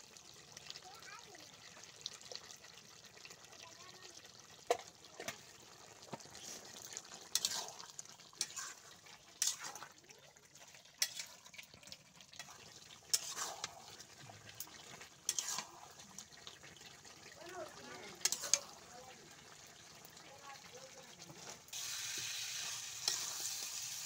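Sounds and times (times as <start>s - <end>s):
sauce sizzling: 0.0s - 24.0s
metal spatula scraping pot: 6.2s - 16.8s, 17.7s - 18.9s, 22.5s - 23.8s.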